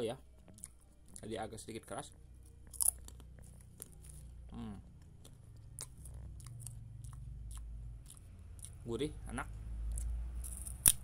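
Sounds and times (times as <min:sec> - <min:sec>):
low steady hum: 0:00.0 - 0:11.0
crunchy snack chewing: 0:02.6 - 0:04.3, 0:05.0 - 0:08.8.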